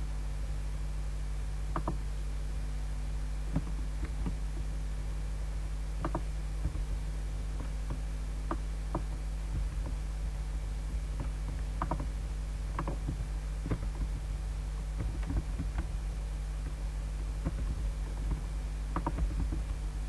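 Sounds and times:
electrical hum with buzz: 0:00.0 - 0:20.0
computer mouse clicks: 0:01.7 - 0:02.0, 0:03.5 - 0:04.7, 0:06.0 - 0:06.9, 0:10.9 - 0:14.3, 0:16.6 - 0:19.8.

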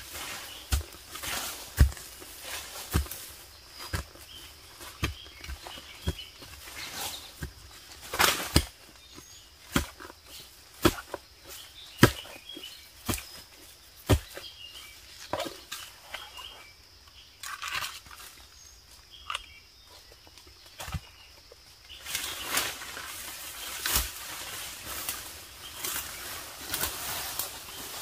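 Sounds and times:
chopping plants: 0:00.0 - 0:15.8, 0:22.0 - 0:28.0
rustling of leaves: 0:00.0 - 0:16.6, 0:20.7 - 0:28.0
faint bird chirps: 0:11.4 - 0:17.6.

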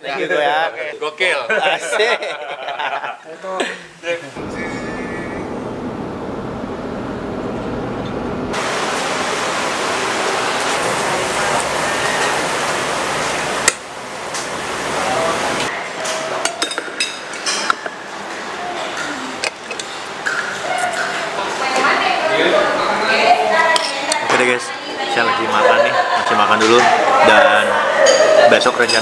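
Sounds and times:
car cabin road noise: 0:04.4 - 0:08.9
loud steady hiss: 0:08.5 - 0:15.7
clinking plates glasses and cutlery: 0:16.2 - 0:18.0, 0:27.9 - 0:29.0.

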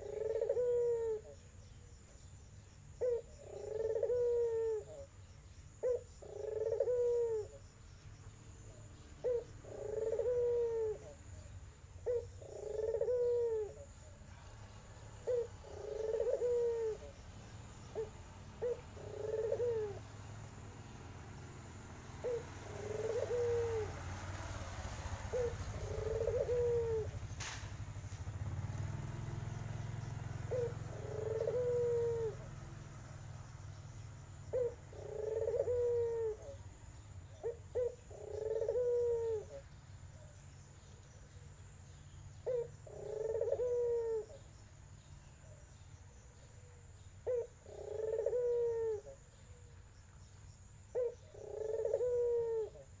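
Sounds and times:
dove cooing: 0:00.0 - 0:01.4, 0:02.9 - 0:05.2, 0:05.8 - 0:07.6, 0:08.6 - 0:29.0, 0:29.6 - 0:41.5, 0:42.3 - 0:44.5, 0:46.5 - 0:49.8, 0:50.9 - 0:53.0.

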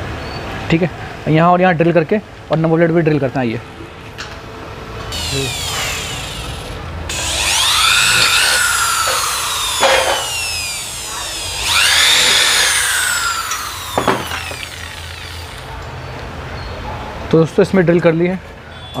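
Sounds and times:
drill click: 0:05.1 - 0:15.8
electric drill whining: 0:05.1 - 0:15.8.

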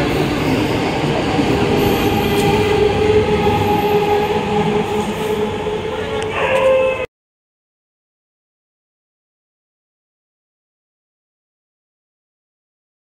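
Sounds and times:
train wheels rumbling: 0:00.0 - 0:07.1
train whine: 0:00.0 - 0:07.1.

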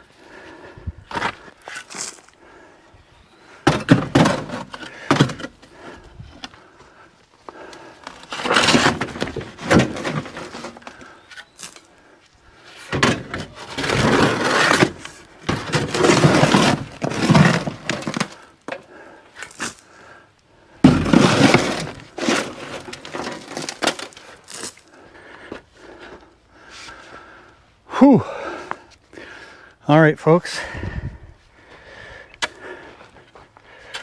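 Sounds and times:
stones rattling and sliding: 0:07.5 - 0:12.0, 0:12.8 - 0:19.9, 0:20.8 - 0:25.0
shovel scraping gravel: 0:08.1 - 0:11.9, 0:12.7 - 0:18.5, 0:19.4 - 0:19.8, 0:20.8 - 0:24.8.

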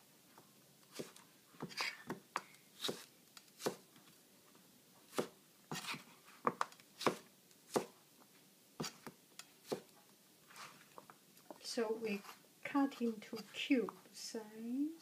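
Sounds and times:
knife cutting cucumber: 0:02.8 - 0:03.8, 0:05.1 - 0:08.0, 0:08.8 - 0:09.9.

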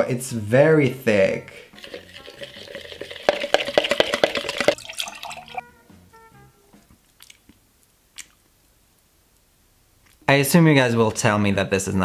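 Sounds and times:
drips and clicks: 0:01.8 - 0:05.6
liquid sloshing in plastic jug: 0:01.8 - 0:05.6
short music notes: 0:05.2 - 0:06.9.

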